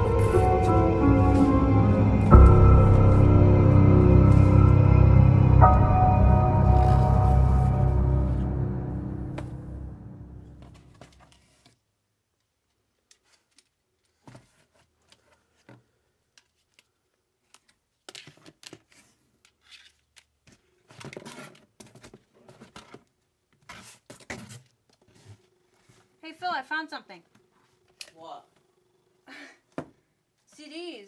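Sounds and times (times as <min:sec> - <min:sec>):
eerie music: 0:00.0 - 0:10.9
rummaging through cardboard boxes: 0:20.5 - 0:26.1.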